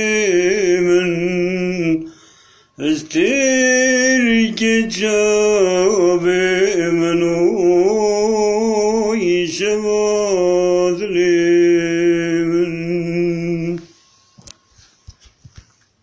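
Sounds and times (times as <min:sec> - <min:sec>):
man singing: 0:00.0 - 0:02.1, 0:02.8 - 0:13.9.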